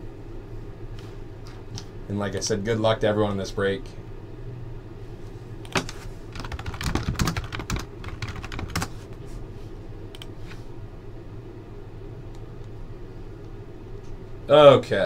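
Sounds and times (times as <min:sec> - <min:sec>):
low steady hum: 0:00.0 - 0:15.0
keyboard keys clicking: 0:05.7 - 0:08.9.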